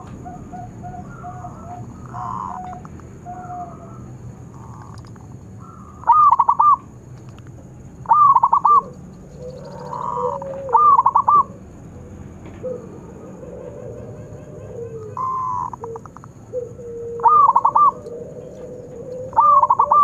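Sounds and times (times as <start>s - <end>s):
dove cooing: 0.0s - 6.9s, 8.0s - 20.0s.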